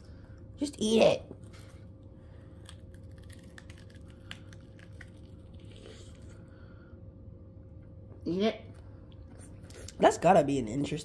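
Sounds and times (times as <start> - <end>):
crunching and chewing: 1.3 - 6.5.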